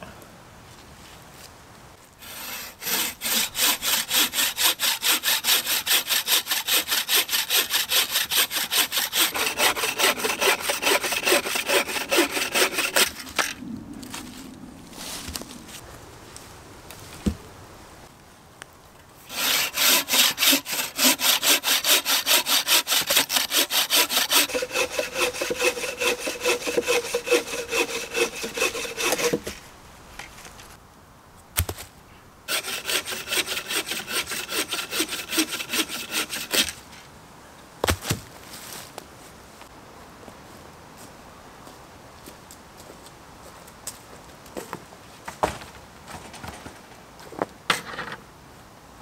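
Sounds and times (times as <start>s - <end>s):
hand saw cutting log: 2.2s - 13.6s, 19.3s - 29.6s, 32.5s - 36.8s.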